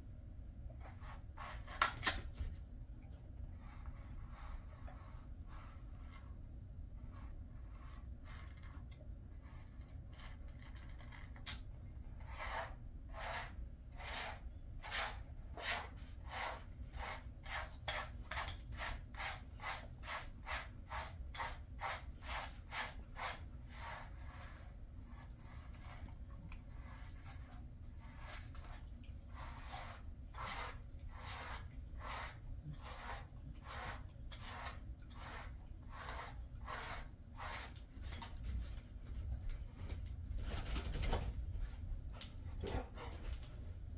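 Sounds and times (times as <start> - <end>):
brush scratching through dog fur: 0.8 - 1.9, 3.5 - 11.3, 12.2 - 39.6.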